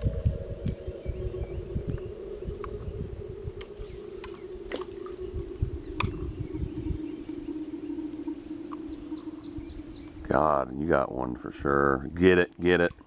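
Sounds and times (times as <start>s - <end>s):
steady low hum: 0.0s - 13.0s
uneven low rumble: 0.0s - 13.0s
sharp clicks: 6.0s - 6.2s.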